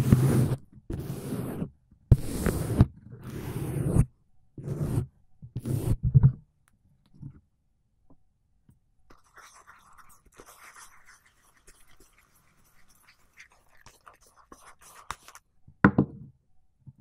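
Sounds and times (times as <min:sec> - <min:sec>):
shaving brush rubbing microphone: 0:00.0 - 0:04.0, 0:04.6 - 0:06.0, 0:09.2 - 0:15.4
faint light scratching: 0:09.1 - 0:15.4.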